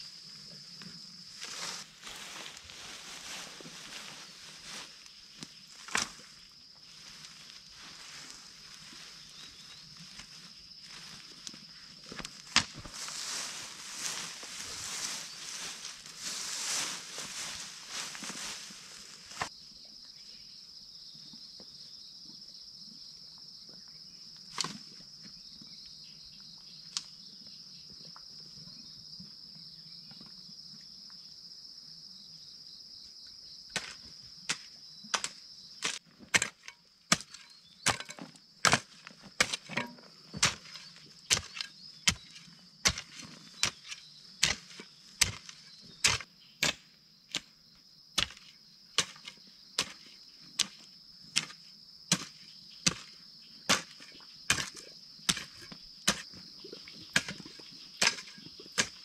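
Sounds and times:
high-pitched insect noise: 0:00.0 - 0:59.0
hoe chopping into dry soil: 0:05.8 - 0:06.3, 0:12.2 - 0:18.7, 0:33.8 - 0:47.5, 0:48.2 - 0:56.4, 0:57.1 - 0:59.0.

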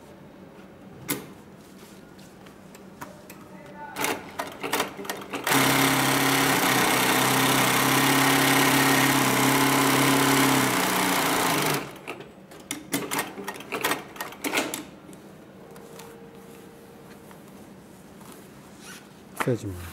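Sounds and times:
industrial sewing machine running: 0:04.0 - 0:12.2.

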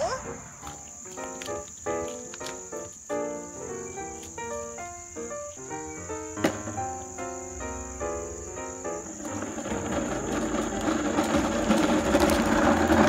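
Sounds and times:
crickets trilling: 0:00.0 - 0:13.0
toy car rolling on asphalt: 0:08.4 - 0:13.0.

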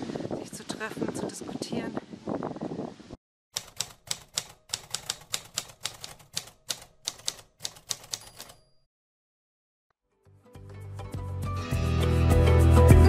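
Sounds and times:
typewriter keys striking: 0:03.6 - 0:08.8.

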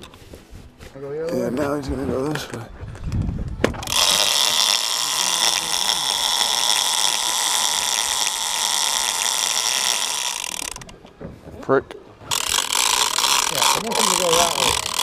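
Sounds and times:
fishing reel drag singing: 0:03.8 - 0:10.9, 0:12.3 - 0:15.0.

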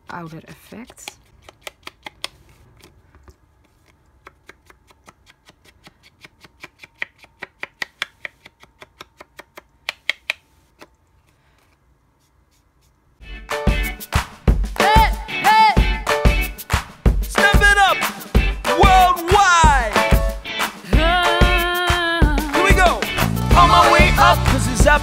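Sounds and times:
music: 0:13.2 - 0:25.0.

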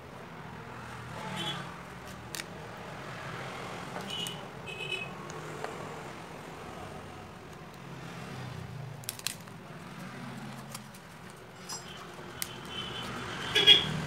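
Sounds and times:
low hum of street traffic: 0:00.0 - 0:14.0
plastic phone parts clicking: 0:09.0 - 0:09.6.

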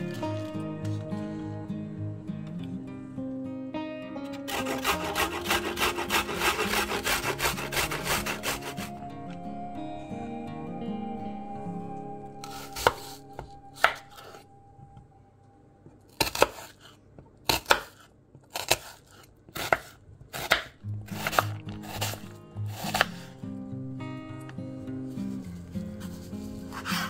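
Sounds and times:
knife chopping on wooden board: 0:04.5 - 0:08.8, 0:16.2 - 0:16.8, 0:17.5 - 0:23.2.

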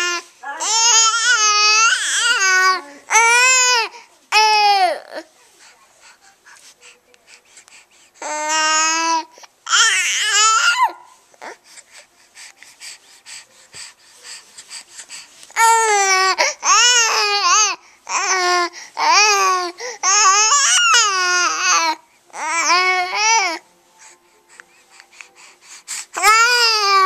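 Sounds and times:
baby cooing: 0:00.0 - 0:05.3, 0:08.2 - 0:11.6, 0:15.6 - 0:23.6.

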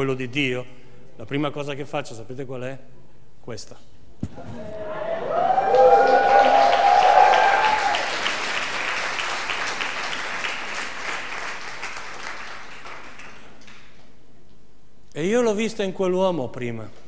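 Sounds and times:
crowd applauding: 0:05.1 - 0:13.9.

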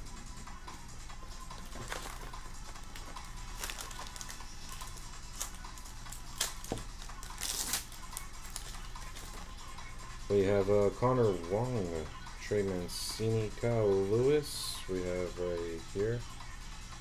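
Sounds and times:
plastic wrapper crinkling and tearing: 0:01.5 - 0:09.5.

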